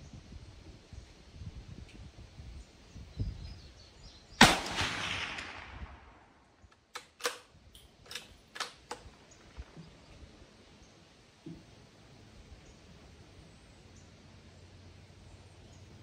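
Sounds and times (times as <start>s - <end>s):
rifle shot with echo: 4.4s - 6.5s.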